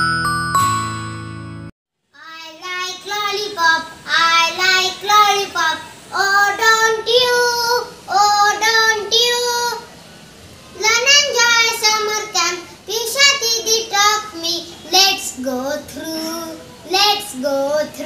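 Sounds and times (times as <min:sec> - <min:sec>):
chiming jingle: 0:00.0 - 0:01.7
boy singing: 0:02.2 - 0:10.0, 0:10.8 - 0:18.0.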